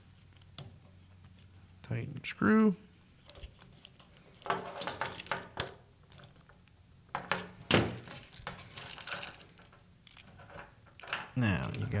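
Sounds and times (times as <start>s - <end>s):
tools and outlets clinking: 7.2s - 12.0s.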